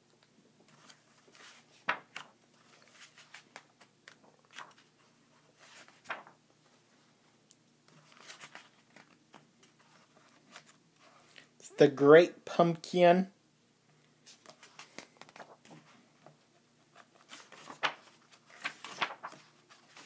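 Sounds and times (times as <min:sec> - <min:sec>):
book pages turning: 0:00.7 - 0:06.4, 0:07.9 - 0:11.5, 0:14.2 - 0:20.0.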